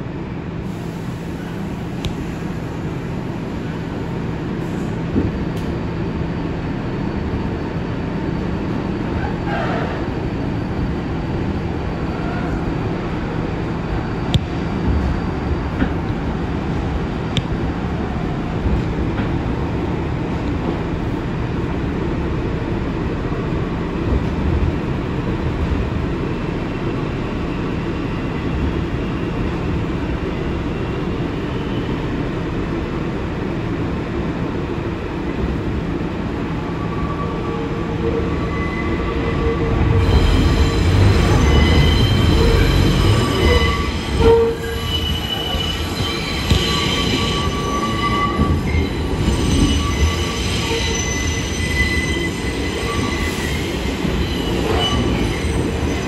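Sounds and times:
subway train rumbling: 0.0s - 56.0s
steel wheels squealing: 36.8s - 56.0s.

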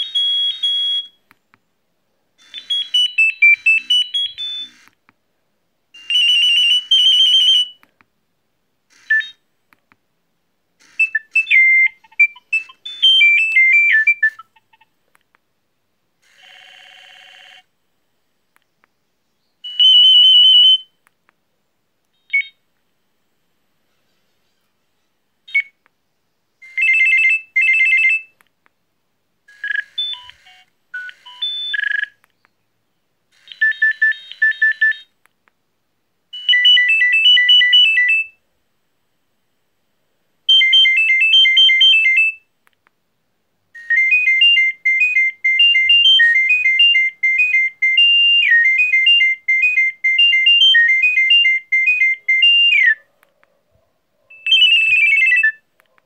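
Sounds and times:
phone ringtone melodies: 2.4s - 4.8s, 6.0s - 7.8s, 10.8s - 14.8s, 16.2s - 17.6s, 26.6s - 28.3s, 29.5s - 32.1s, 36.3s - 38.4s, 40.5s - 42.4s, 43.8s - 53.0s, 54.3s - 55.6s.

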